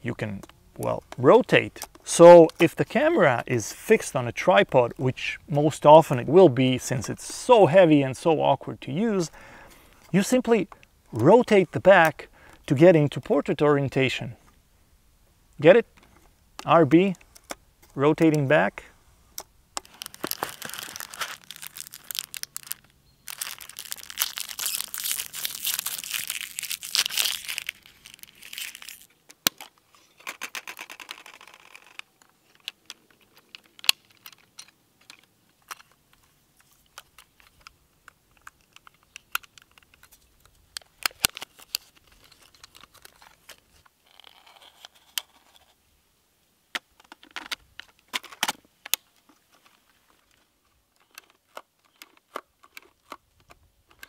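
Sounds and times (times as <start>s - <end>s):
film wrapper crumpling and tearing: 19.8s - 29.7s, 38.4s - 45.4s.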